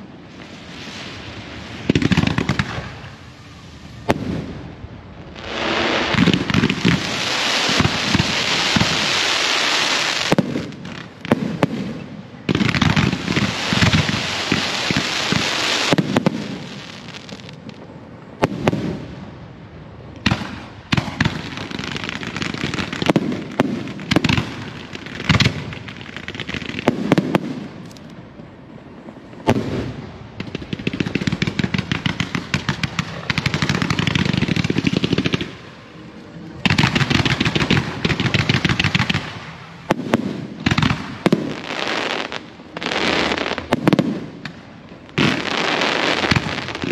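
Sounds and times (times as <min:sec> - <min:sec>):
fireworks hissing and crackling: 0:00.0 - 0:46.9.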